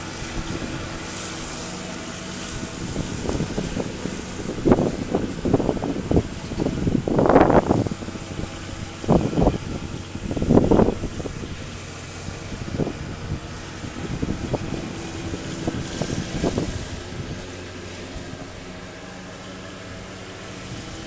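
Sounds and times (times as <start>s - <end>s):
riding lawn mower engine: 0.0s - 21.0s
low rumbling bursts: 2.5s - 19.0s.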